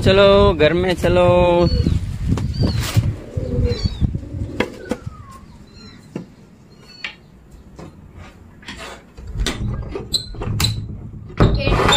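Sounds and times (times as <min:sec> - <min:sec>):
pigeons tapping on tiled floor: 0:03.8 - 0:08.0
high bird chirps: 0:04.8 - 0:07.4.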